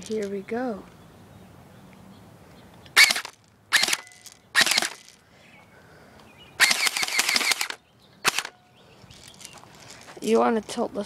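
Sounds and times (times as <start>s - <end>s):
airsoft rifle shots: 3.0s - 5.0s, 6.6s - 8.6s.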